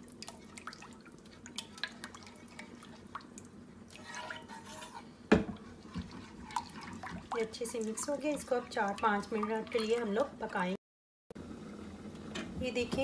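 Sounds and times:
spoon stirring thick sauce: 0.2s - 10.4s
spoon scraping pan: 3.9s - 8.8s.

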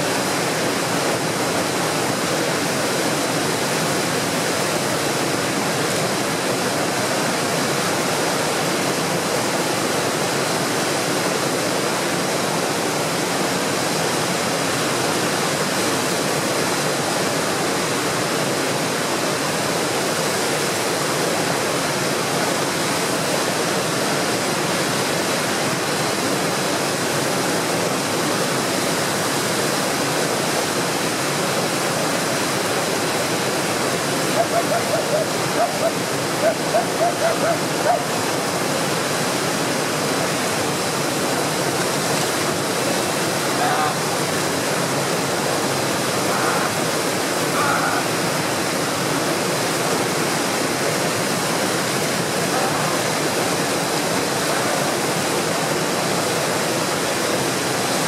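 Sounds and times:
rapids rushing water: 0.0s - 58.0s.

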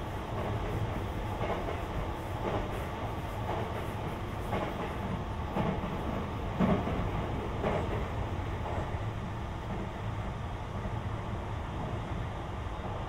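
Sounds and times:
train wheels rumbling on rail: 0.0s - 13.0s
rail joint clacks: 0.3s - 10.0s.

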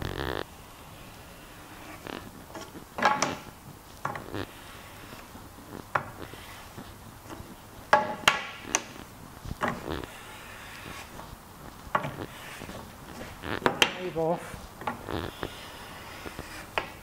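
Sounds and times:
hammer tapping wooden plane: 13.6s - 14.2s.

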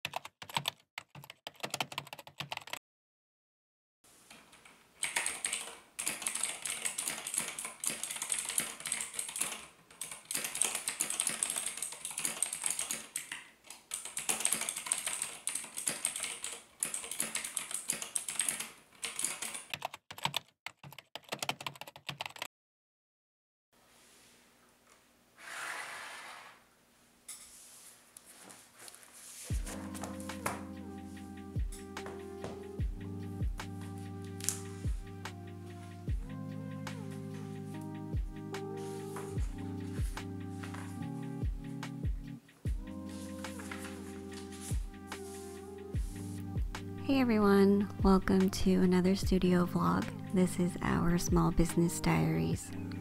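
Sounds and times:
mechanical keyboard typing: 0.1s - 2.8s, 5.0s - 22.5s.

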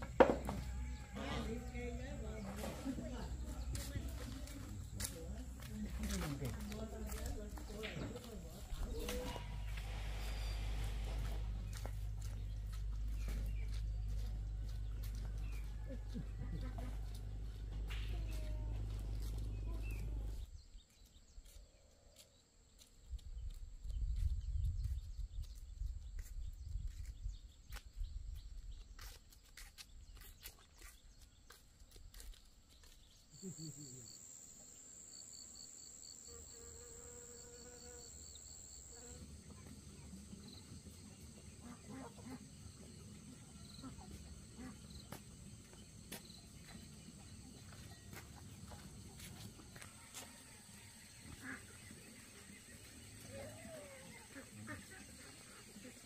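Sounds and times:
low hum: 7.7s - 20.5s
insects chirping trill: 33.3s - 41.4s.

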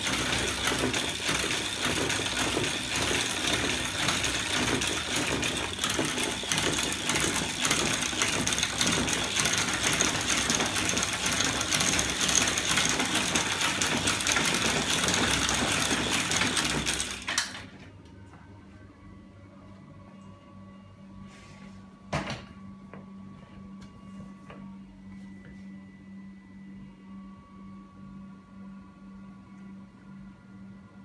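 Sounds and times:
mechanical rattle of chain and linkage: 0.0s - 17.7s.

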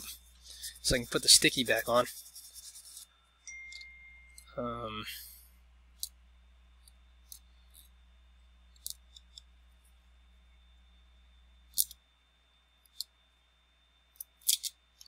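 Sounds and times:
electrical hum with high whine: 0.0s - 15.0s
tools clicking and tapping: 3.5s - 4.5s.

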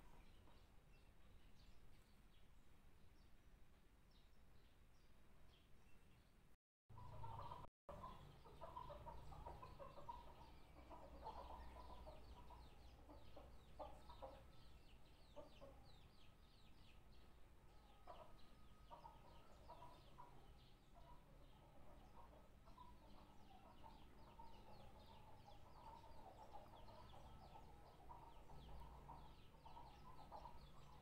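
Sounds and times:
small birds chirping: 0.0s - 31.0s
chickens clucking: 6.9s - 16.7s, 18.0s - 31.0s.

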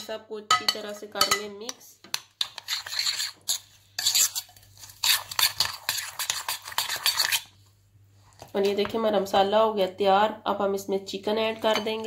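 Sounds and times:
spoon stirring thick marinade: 1.2s - 7.6s.

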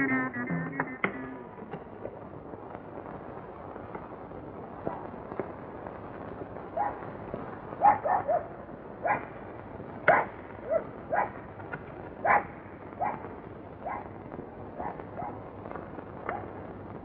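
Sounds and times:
steady hiss: 0.0s - 17.0s
dog barking: 6.8s - 7.0s, 7.8s - 9.3s, 10.1s - 11.4s, 12.2s - 13.2s, 13.8s - 14.1s, 14.8s - 15.4s.

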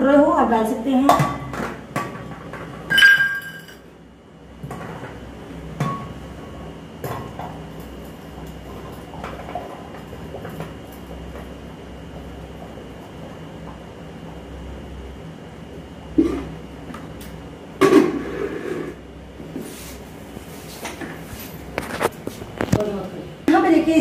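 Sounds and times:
steel bowl ringing: 2.9s - 3.8s.

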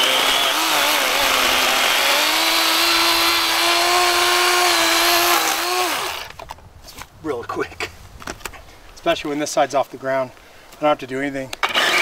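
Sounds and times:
electric chainsaw cutting branch: 0.0s - 6.3s, 11.6s - 12.0s.

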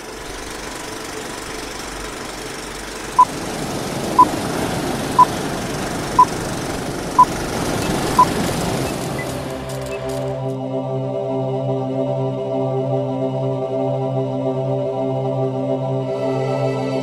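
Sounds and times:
film projector whirring and rattling: 0.0s - 10.6s.

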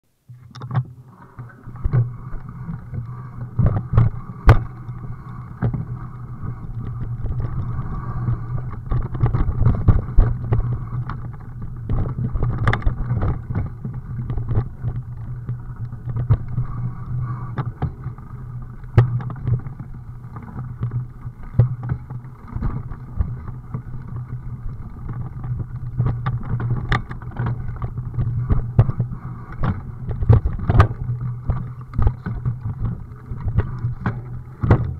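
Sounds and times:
vehicle ride rumble: 0.1s - 34.9s
knocks and rattles over bumps: 17.5s - 34.9s.

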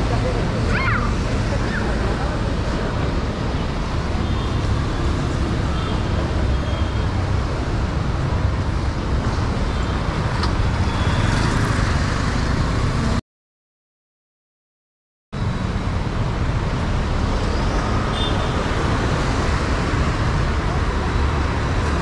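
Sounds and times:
street traffic rumble: 0.0s - 13.2s, 15.4s - 22.0s.

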